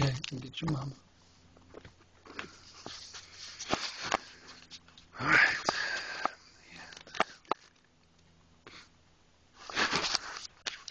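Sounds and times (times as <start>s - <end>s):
loud breath: 5.2s - 7.5s.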